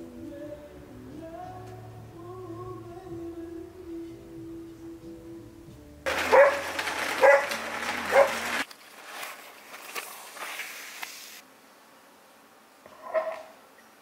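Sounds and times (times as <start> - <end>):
wrapping rustling with clicks: 6.1 - 11.4
dog barking: 6.2 - 7.5, 8.1 - 8.5, 13.0 - 13.5.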